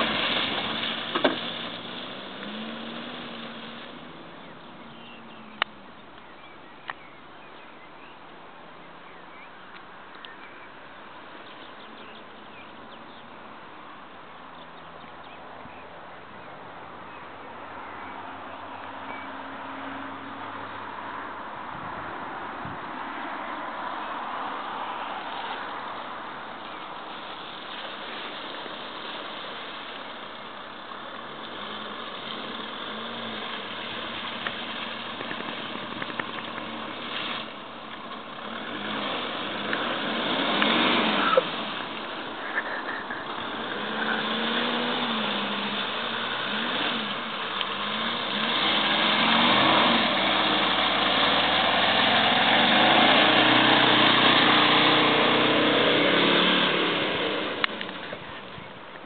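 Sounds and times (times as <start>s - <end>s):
suv engine revving off-road: 0.0s - 6.6s, 23.0s - 58.8s.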